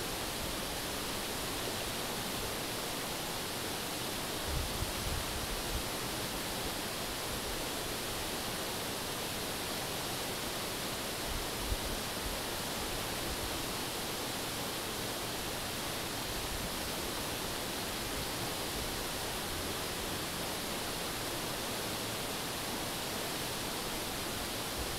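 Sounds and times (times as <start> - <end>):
river flowing over rocks: 5.2 - 24.9.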